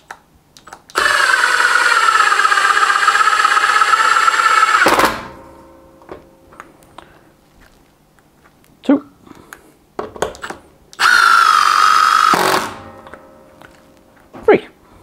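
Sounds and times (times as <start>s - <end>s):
impact driver driving screw into wood: 0.9s - 5.4s, 10.3s - 13.0s
motor spinning down whine: 1.0s - 5.3s.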